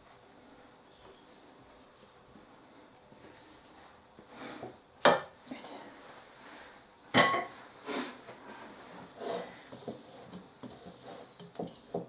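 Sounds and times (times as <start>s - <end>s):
spatula scraping bowl: 8.9s - 12.0s
utensils knocking against mixing bowl: 9.7s - 12.0s.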